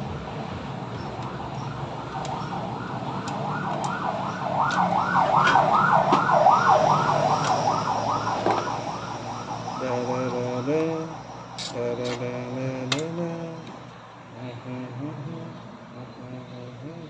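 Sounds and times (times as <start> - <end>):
siren yelping: 1.2 - 11.6.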